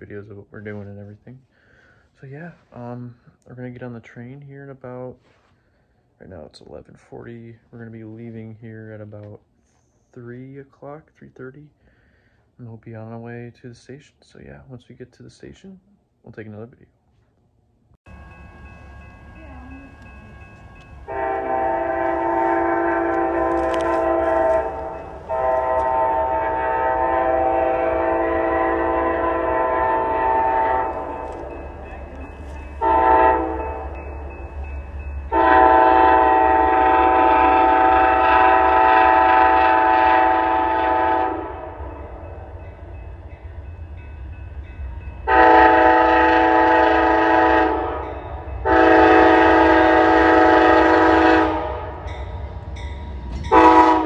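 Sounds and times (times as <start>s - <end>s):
train air horn blasts: 21.0s - 31.7s, 32.8s - 34.1s, 35.3s - 42.2s, 45.2s - 52.2s, 53.4s - 54.0s.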